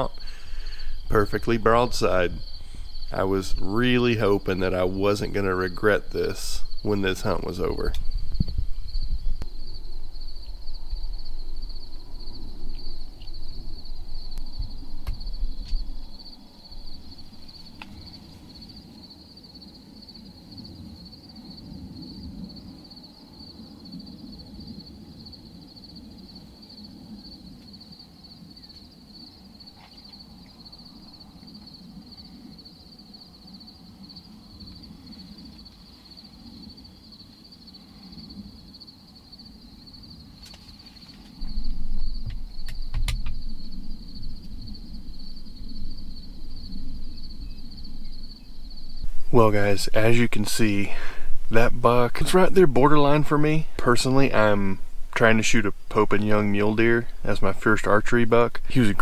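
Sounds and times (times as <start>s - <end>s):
insects trilling: 0.0s - 59.0s
loud low rumble: 41.4s - 55.2s.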